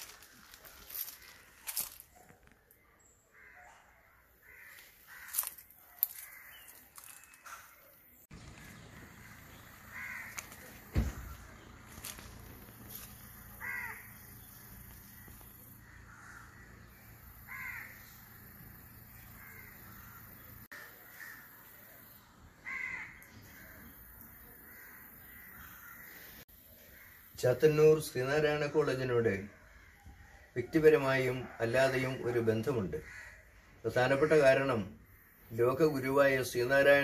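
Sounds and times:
faint crow caw: 0:00.0 - 0:02.6, 0:03.2 - 0:37.0.

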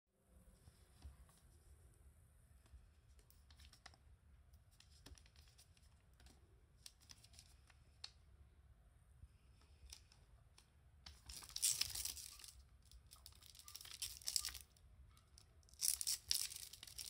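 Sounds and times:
plastic bottle crinkling: 0:11.2 - 0:14.7, 0:15.7 - 0:17.0.

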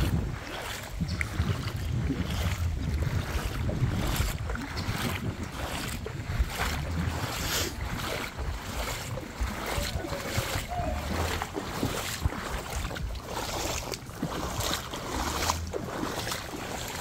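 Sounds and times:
shallow water sloshing and splashing: 0:00.0 - 0:17.0
wind buffeting microphone: 0:00.0 - 0:17.0.

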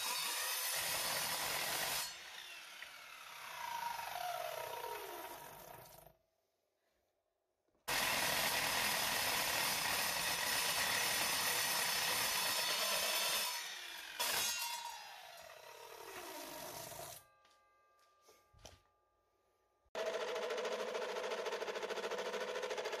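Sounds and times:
mitre saw cutting metal bar: 0:00.0 - 0:06.0, 0:07.9 - 0:17.2
saw blade whine spinning down: 0:02.4 - 0:05.9, 0:14.8 - 0:17.2.

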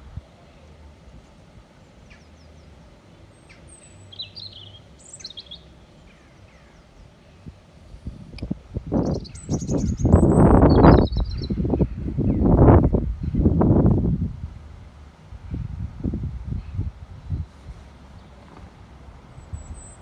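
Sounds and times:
small birds chirping: 0:01.8 - 0:13.6, 0:16.5 - 0:20.0
wind buffeting microphone: 0:07.0 - 0:20.0.

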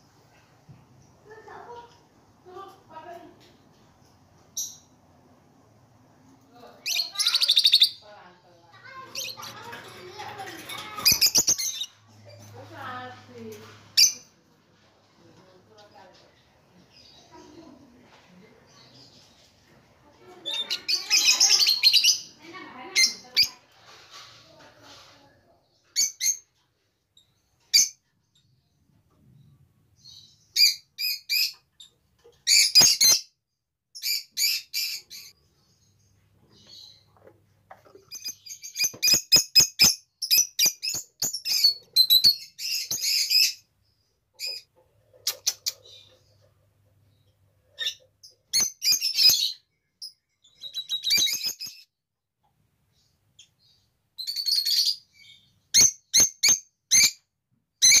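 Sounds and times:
lovebirds chirping: 0:06.4 - 0:14.4, 0:15.4 - 0:23.6, 0:27.1 - 0:33.4, 0:34.0 - 0:52.0
lovebirds shrill chirps: 0:06.8 - 0:08.0, 0:08.9 - 0:12.4, 0:20.4 - 0:23.6, 0:30.0 - 0:33.4, 0:38.1 - 0:43.7, 0:47.8 - 0:51.9, 0:53.4 - 0:57.2, 0:57.8 - 0:58.0.

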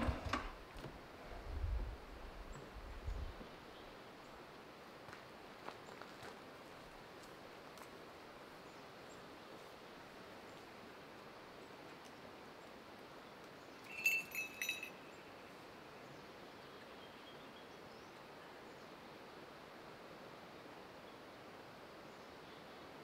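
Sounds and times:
faint outdoor background hiss: 0:00.0 - 0:23.0
falconry bells jingling: 0:13.8 - 0:15.3.

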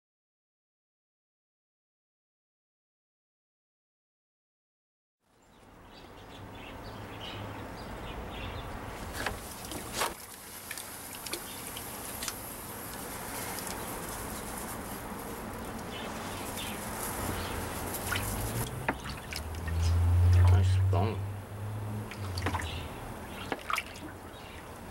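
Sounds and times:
outdoor background hiss: 0:05.2 - 0:24.9
birds chirping: 0:05.4 - 0:24.9.

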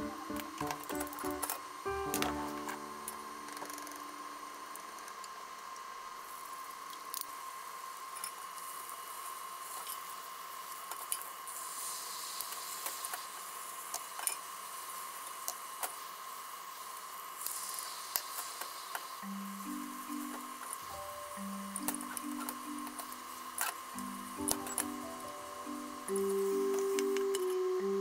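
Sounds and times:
faint steady hum: 0:00.0 - 0:28.0
egg sizzling in pan: 0:08.4 - 0:27.7.

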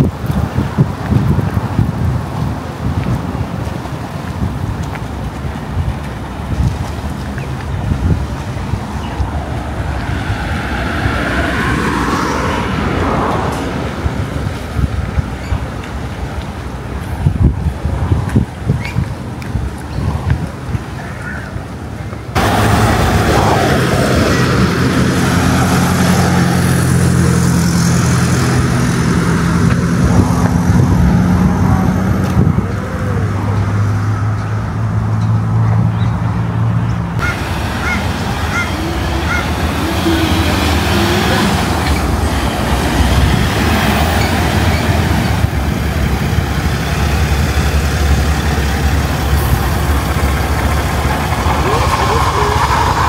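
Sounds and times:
vehicle engine running: 0:22.4 - 0:33.7, 0:37.2 - 0:53.0.

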